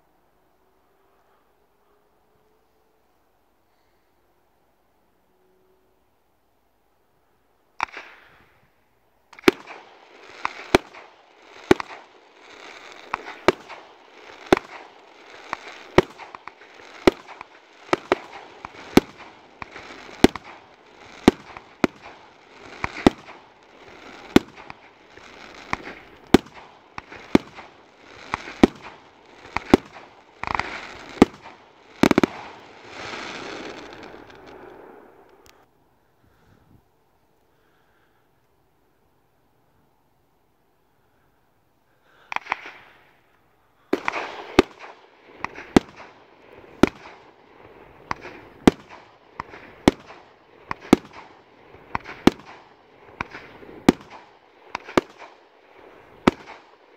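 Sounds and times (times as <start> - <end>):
firework shots: 7.8 - 8.7, 9.3 - 35.6, 42.0 - 56.9
firework crackling: 9.3 - 35.7, 42.2 - 56.9.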